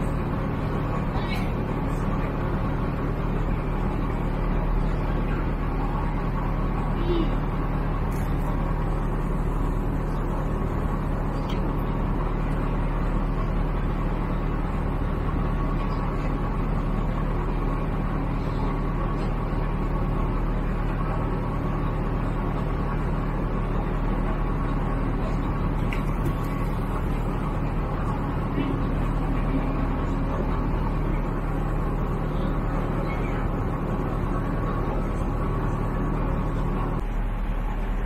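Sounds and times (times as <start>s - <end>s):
engine droning steadily: 0.0s - 38.0s.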